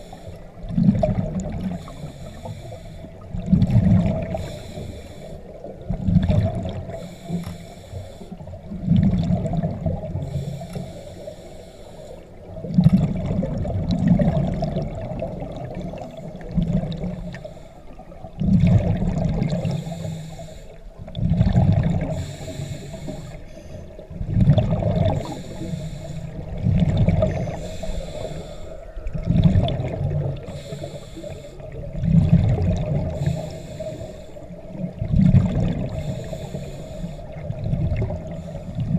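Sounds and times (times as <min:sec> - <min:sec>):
exhaled bubbles rumbling: 0:00.0 - 0:02.4, 0:03.0 - 0:07.2, 0:08.3 - 0:11.0, 0:12.3 - 0:38.9
diver breathing through regulator: 0:00.0 - 0:05.7, 0:06.7 - 0:08.6, 0:10.0 - 0:12.5, 0:15.8 - 0:18.2, 0:19.4 - 0:21.0, 0:21.9 - 0:24.0, 0:24.9 - 0:29.0, 0:30.3 - 0:31.9, 0:32.7 - 0:34.8, 0:35.4 - 0:38.9.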